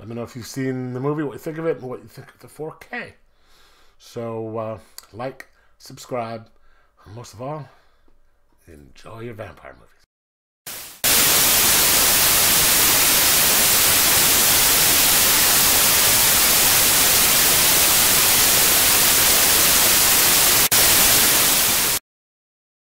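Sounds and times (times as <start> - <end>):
white noise static hiss: 10.7 - 22.0.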